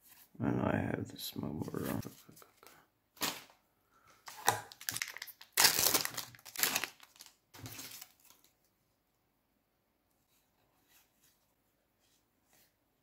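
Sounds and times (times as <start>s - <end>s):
foil wrapper crinkling and tearing: 4.3s - 8.5s.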